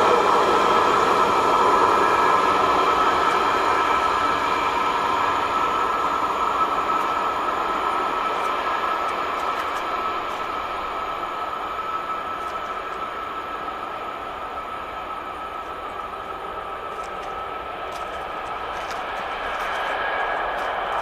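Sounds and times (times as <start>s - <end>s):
passing train rolling: 0.0s - 21.0s.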